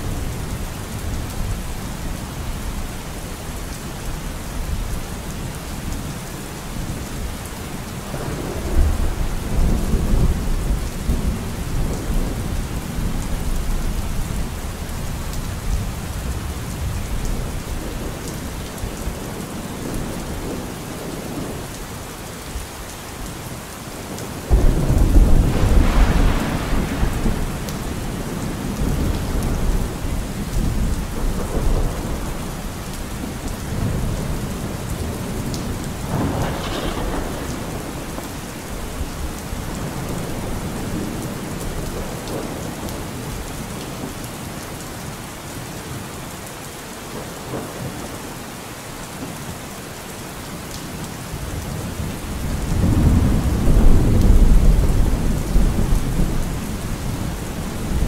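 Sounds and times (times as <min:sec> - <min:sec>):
steady rain: 0:00.0 - 0:58.0
thunder rumbling: 0:08.0 - 0:21.6, 0:24.2 - 0:43.4, 0:51.6 - 0:58.0.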